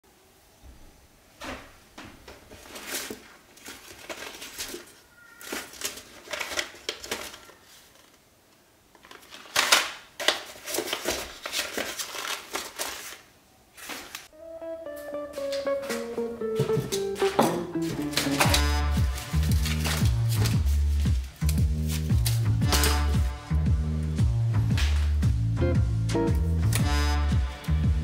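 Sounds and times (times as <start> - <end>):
paper packets rustling: 2.3 - 23.4.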